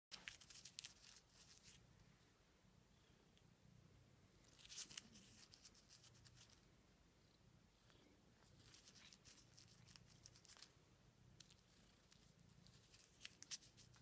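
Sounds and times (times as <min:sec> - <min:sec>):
plastic wrapper crinkling: 0:00.1 - 0:01.8.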